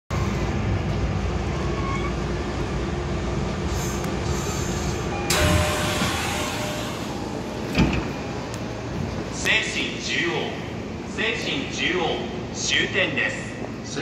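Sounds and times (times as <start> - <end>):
train equipment humming: 0.1 - 14.0.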